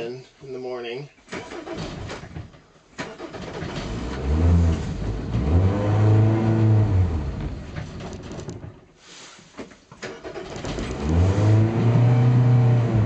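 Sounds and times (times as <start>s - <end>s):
boat engine cranking and revving: 3.0s - 8.6s, 10.0s - 13.0s.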